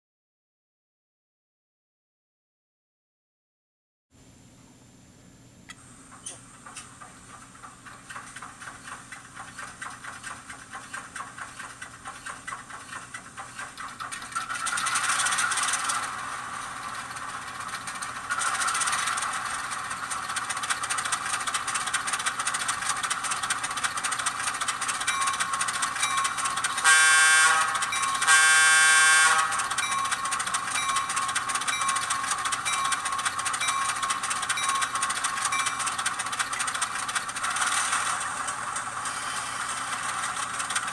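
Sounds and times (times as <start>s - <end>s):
diesel engine chugging through small speaker: 6.2s - 40.9s
train horn blasts: 26.7s - 29.9s.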